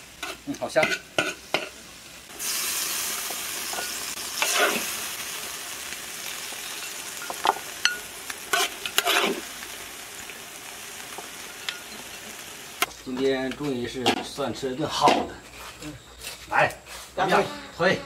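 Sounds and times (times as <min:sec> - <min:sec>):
food sizzling in a wok: 0:00.0 - 0:14.1
ladle scraping wok: 0:00.2 - 0:01.8, 0:02.4 - 0:05.0, 0:06.8 - 0:09.5.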